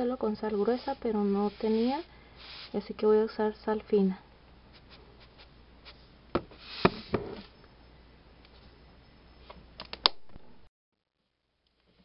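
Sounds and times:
salt rustling into bowl: 0.5 - 2.9.

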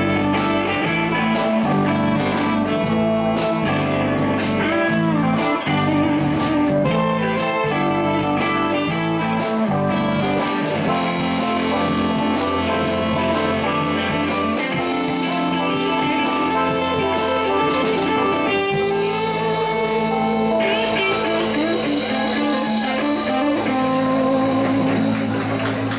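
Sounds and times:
bass guitar: 0.0 - 25.9
drums: 0.0 - 25.9
electric guitar: 0.0 - 25.9
saxophone: 0.0 - 25.9.

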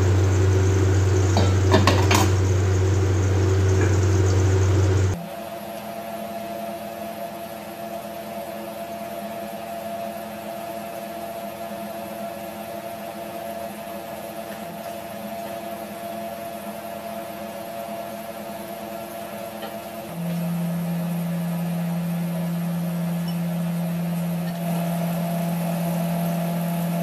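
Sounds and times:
stove hiss: 0.0 - 5.2
machine whirring hum: 0.0 - 27.0.

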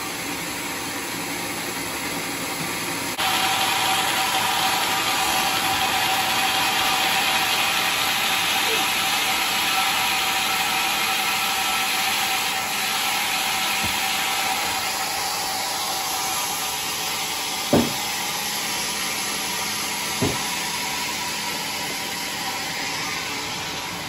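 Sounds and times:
band saw whirring: 0.0 - 24.0
dull knocks of timber: 13.8 - 14.1, 17.7 - 18.1, 20.2 - 20.6.

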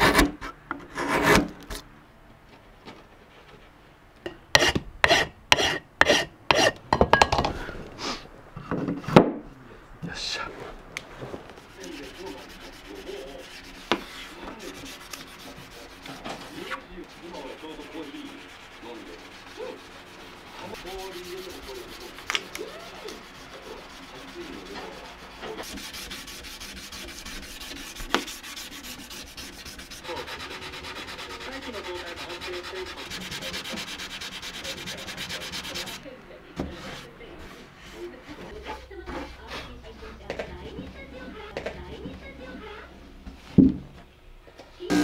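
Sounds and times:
hand sanding wood: 11.6 - 41.4.

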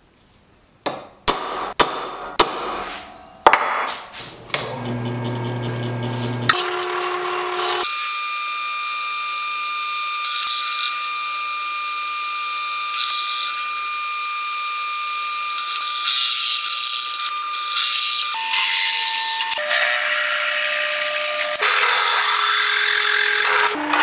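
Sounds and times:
drill press whining: 4.4 - 7.8, 21.1 - 24.0.

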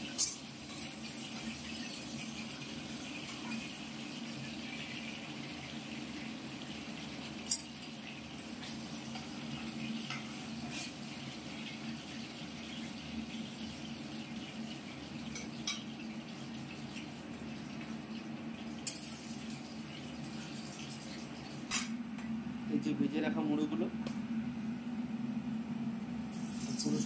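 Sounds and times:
oil sizzling in pans: 0.0 - 22.1, 26.3 - 27.0
low hum: 21.8 - 26.6.

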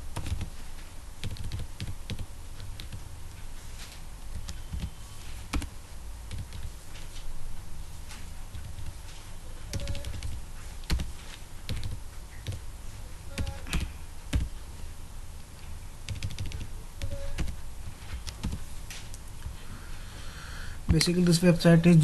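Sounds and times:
keyboard typing: 0.1 - 0.5, 1.2 - 3.0, 4.3 - 5.7, 6.3 - 6.7, 9.6 - 12.6, 13.3 - 14.6, 16.0 - 18.7.

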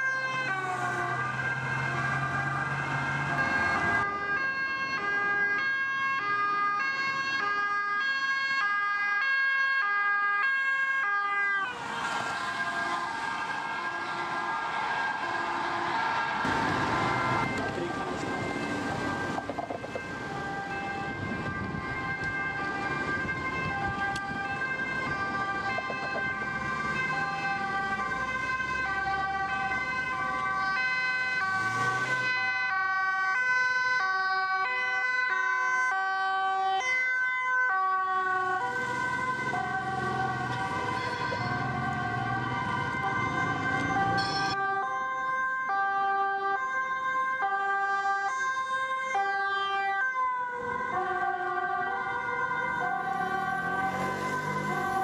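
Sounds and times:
passing vehicle engine and tyres: 0.0 - 7.7, 11.4 - 33.6, 38.2 - 45.5, 50.2 - 55.0
two-tone police sirens: 0.0 - 55.0.

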